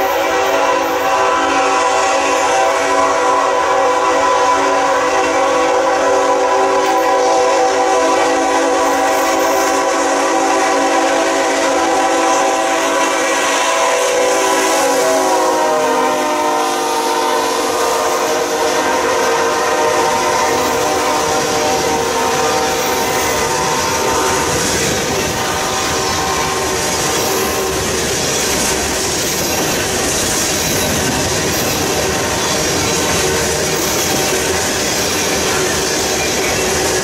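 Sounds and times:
locomotive air horn chord: 0.0 - 27.9.

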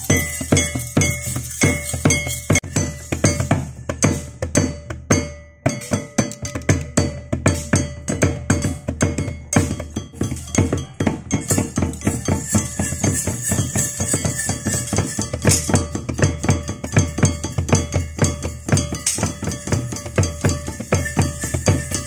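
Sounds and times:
drums playing fast rhythm: 0.0 - 22.0
hand cymbals ringing: 0.0 - 22.0.

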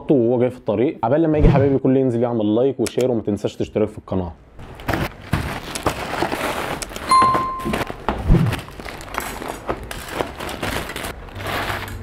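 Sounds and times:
plastic bags rustling: 4.6 - 12.0
short ringing tone: 7.1 - 8.0.

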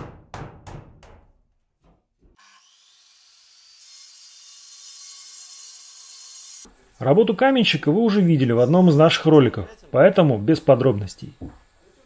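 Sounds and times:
sharp knocks: 0.0 - 2.1
angle grinder cutting brick: 2.4 - 6.7.

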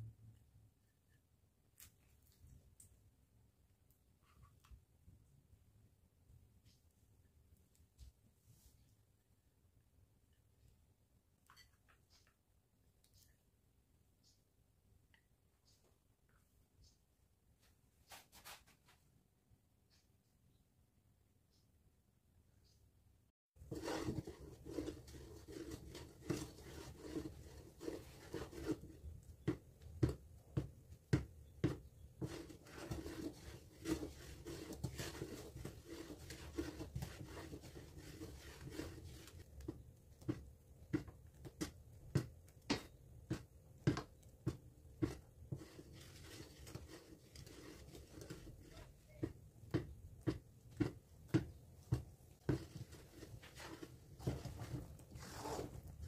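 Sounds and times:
wooden spoon scraping a pan: 23.6 - 56.0.

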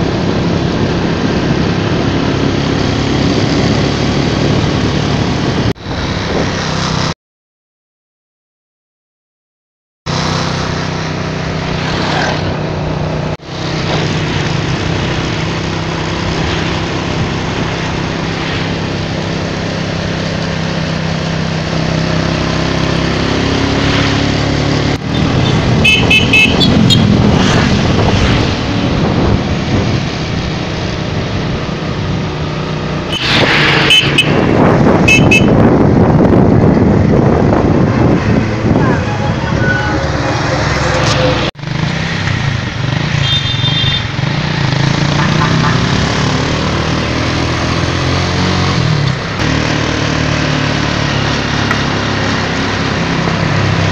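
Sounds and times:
wind noise: 0.0 - 7.1, 21.4 - 41.5
short horn beeps: 25.4 - 27.1, 35.1 - 35.6.

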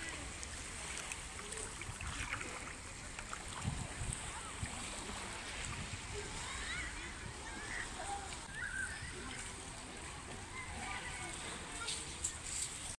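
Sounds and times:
water lapping gently: 0.0 - 12.9
wind on microphone: 1.7 - 9.7.

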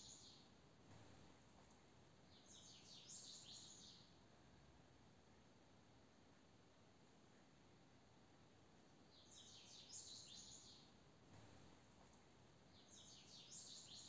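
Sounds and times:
faint bird chirping: 0.0 - 4.7, 8.6 - 14.0.

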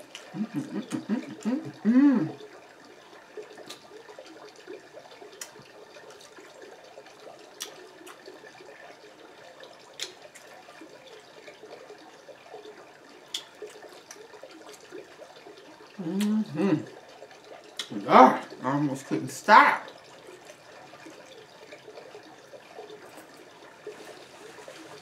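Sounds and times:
wet chewing sounds: 0.0 - 1.8, 3.5 - 6.7, 7.5 - 8.8, 9.8 - 11.6, 13.2 - 15.2, 17.6 - 18.5.

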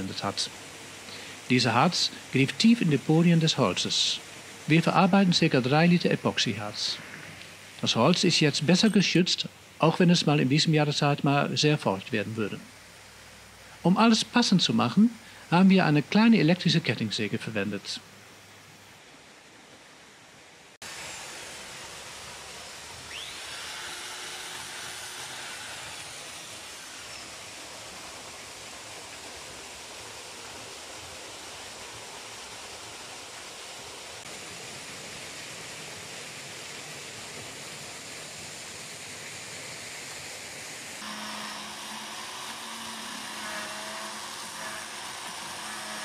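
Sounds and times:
electric chainsaw cutting wood: 20.8 - 30.1, 41.0 - 46.0.

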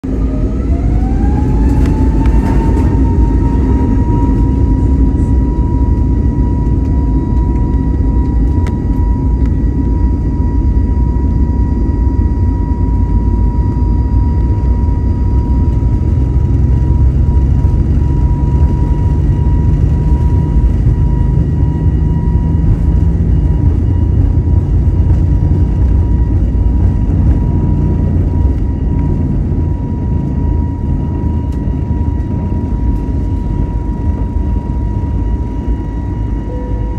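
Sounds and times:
loud rumble: 0.0 - 10.9, 12.8 - 35.2
jet engine whine: 0.0 - 36.9.

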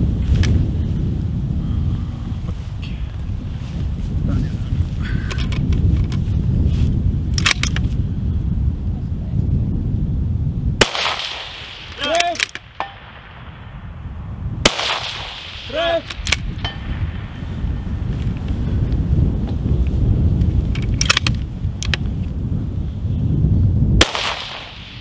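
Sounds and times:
wind rumble on microphone: 0.0 - 25.0
bullet pinging steel target: 10.8 - 13.8, 14.7 - 17.2
rifle shots: 10.8 - 14.0, 14.6 - 17.4, 24.0 - 25.0.

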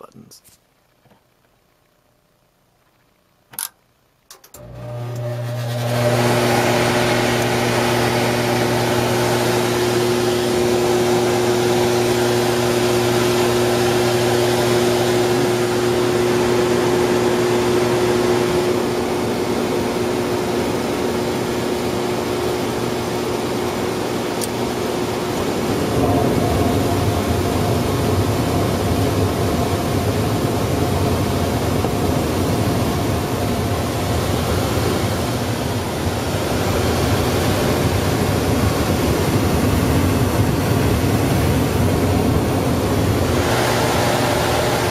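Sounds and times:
inducer motor humming: 4.6 - 21.4, 22.4 - 44.9
gas flame rushing: 24.4 - 44.9.

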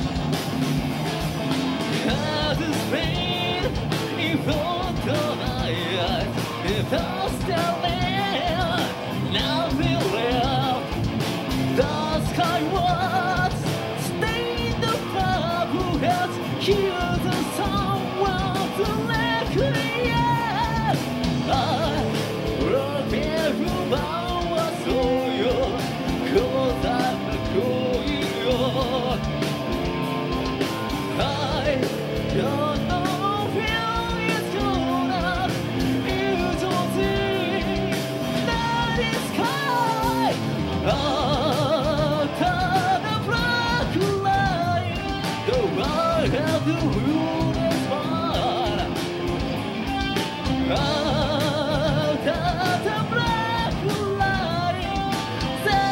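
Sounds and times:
live metal band: 0.0 - 55.9
man singing: 1.9 - 49.2, 50.4 - 55.9.

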